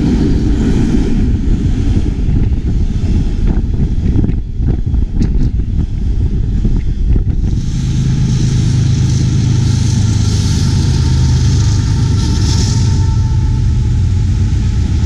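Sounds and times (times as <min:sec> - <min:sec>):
diesel locomotives droning: 0:00.0 - 0:15.0
wind buffeting microphone: 0:00.0 - 0:15.0
hiss: 0:05.6 - 0:15.0.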